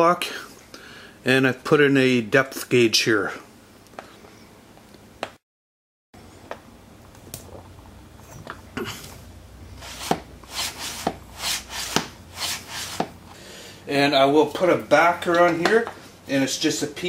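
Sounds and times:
wood scraping on wood: 9.8s - 13.2s.

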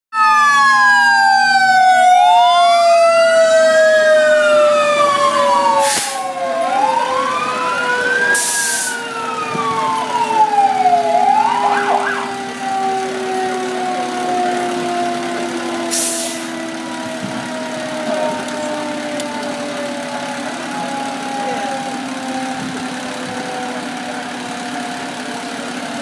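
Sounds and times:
fire engine siren wail: 0.1s - 26.0s
siren yelp: 0.1s - 26.0s
steady siren tone: 0.2s - 26.0s
short hisses: 5.8s - 6.2s.

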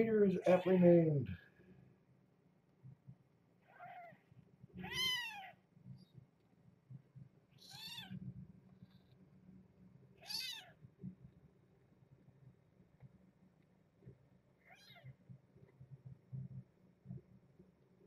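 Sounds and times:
kitten mewing: 3.6s - 4.2s, 4.8s - 5.6s, 10.2s - 10.7s.

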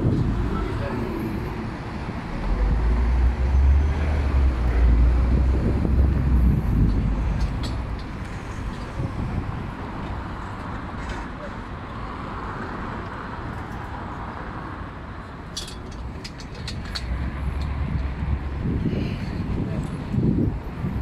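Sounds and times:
heavy low rumble: 0.0s - 9.7s
street traffic: 0.0s - 21.0s.

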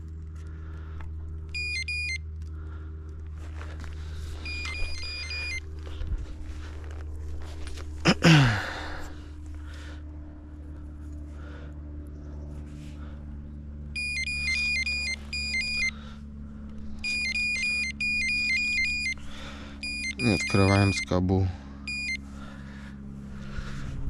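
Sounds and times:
steady low hum: 0.0s - 24.0s
rapid electronic beeping: 4.5s - 5.6s, 19.8s - 21.1s.

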